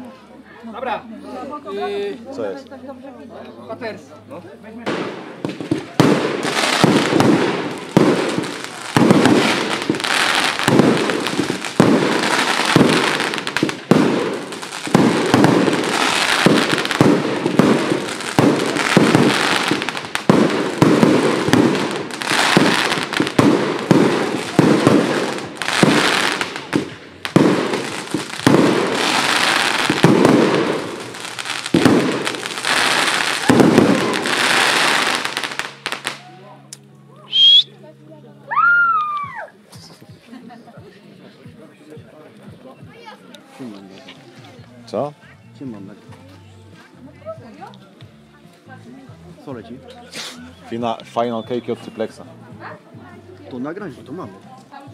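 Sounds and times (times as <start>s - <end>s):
fireworks banging: 4.8s - 36.2s.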